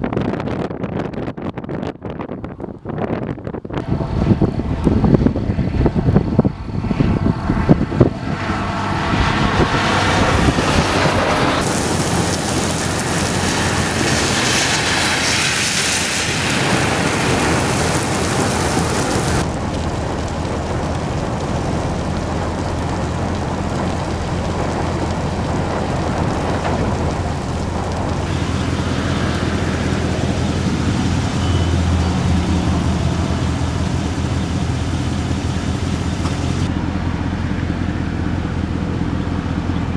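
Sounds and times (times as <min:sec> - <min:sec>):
wind gusting on microphone: 0:00.0 - 0:39.9
heavy rain pouring: 0:08.6 - 0:39.9.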